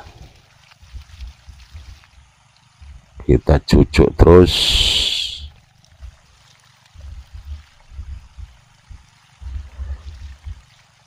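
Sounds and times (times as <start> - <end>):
water trickling and gurgling: 0.0 - 11.0
low thuds: 7.0 - 10.7.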